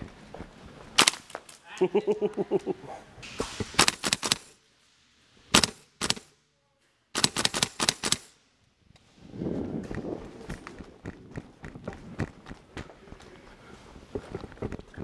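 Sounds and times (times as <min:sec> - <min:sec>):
airsoft rifle shots: 0:01.0 - 0:01.4, 0:03.2 - 0:04.6, 0:05.5 - 0:06.4, 0:07.1 - 0:08.4.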